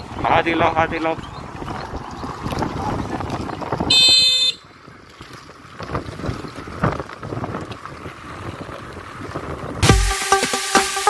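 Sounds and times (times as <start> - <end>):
street noise: 0.0 - 5.8
wind on microphone: 0.0 - 9.9
vehicle horn beep: 3.9 - 4.7.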